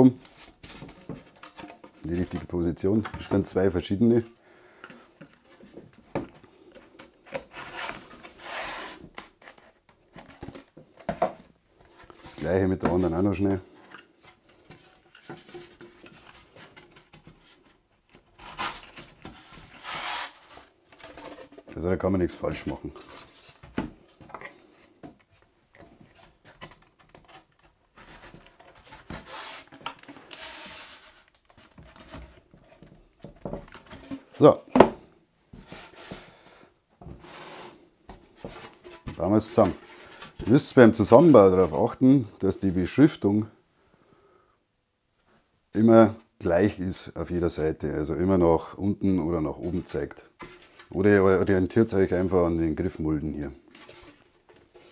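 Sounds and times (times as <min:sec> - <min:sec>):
plastic strip scraping: 0:07.0 - 0:09.8, 0:18.2 - 0:21.8, 0:25.8 - 0:32.3.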